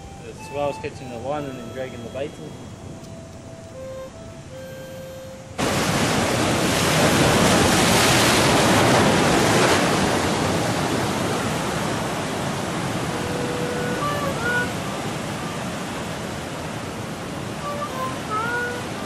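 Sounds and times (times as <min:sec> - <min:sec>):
surf rushing over rocks: 0:05.6 - 0:19.0.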